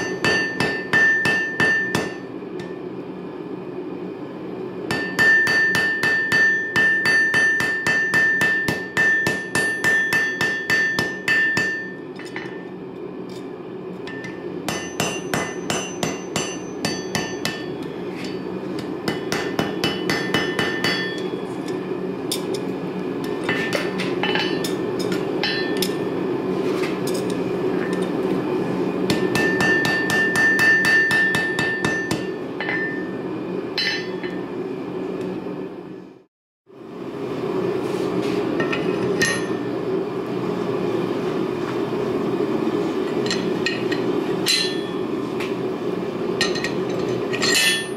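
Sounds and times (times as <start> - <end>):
hammer ringing on anvil: 0.0 - 2.8, 4.9 - 12.7, 14.1 - 22.6, 23.5 - 26.1, 29.1 - 33.2, 33.8 - 34.5, 38.6 - 39.7, 43.2 - 45.1, 47.4 - 47.9.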